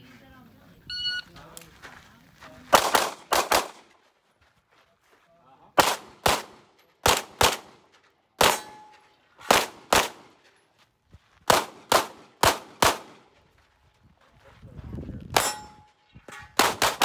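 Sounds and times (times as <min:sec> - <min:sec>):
pistol shots with echo: 0:02.7 - 0:03.9, 0:05.8 - 0:10.4, 0:11.5 - 0:13.3, 0:15.3 - 0:15.9, 0:16.5 - 0:17.0.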